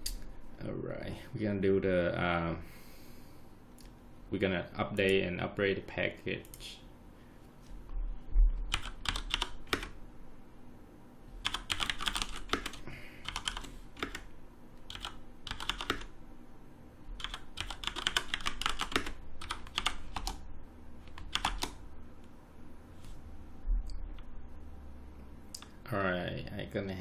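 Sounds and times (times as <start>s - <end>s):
keyboard typing: 8.6s - 10.0s, 11.4s - 16.2s, 17.2s - 20.4s, 21.0s - 21.8s.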